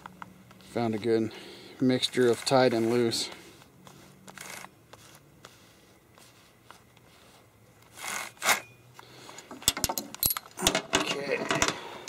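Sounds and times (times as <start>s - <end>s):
glove rasping along chain: 0.4s - 8.8s.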